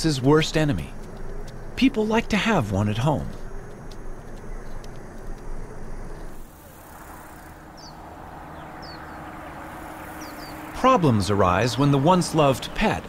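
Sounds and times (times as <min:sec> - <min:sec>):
minivan approaching: 0:00.0 - 0:13.0
small birds chirping: 0:00.0 - 0:13.0.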